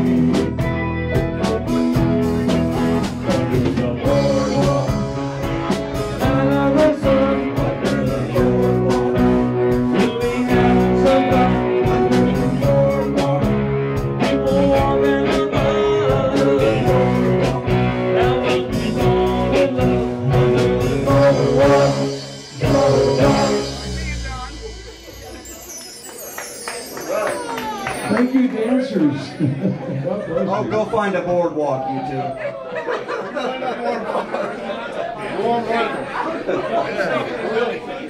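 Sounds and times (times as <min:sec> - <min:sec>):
live rock band playing: 0:00.0 - 0:29.6
man singing: 0:02.4 - 0:24.2
final band chord ringing: 0:20.3 - 0:27.1.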